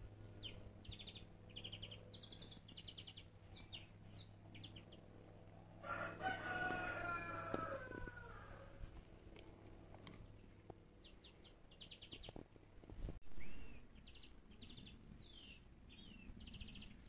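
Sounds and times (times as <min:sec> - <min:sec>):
rooster crowing: 0:05.8 - 0:08.9.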